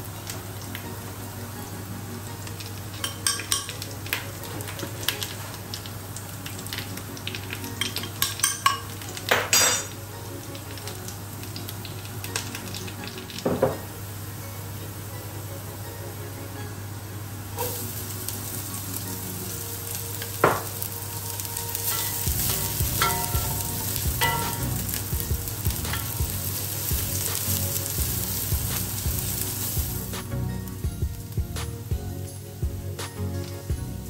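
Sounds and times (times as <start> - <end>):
vegetables sizzling in oil: 0.0 - 34.0.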